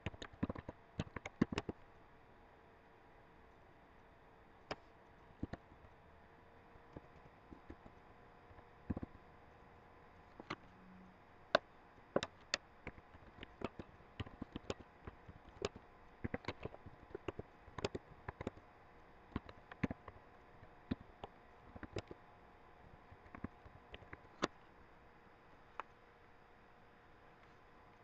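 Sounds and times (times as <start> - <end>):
keyboard typing clicks: 0.0 - 1.8, 8.9 - 9.2, 12.2 - 18.6, 19.3 - 20.2, 20.9 - 22.2, 23.1 - 24.6
faint steady hum: 0.0 - 28.0.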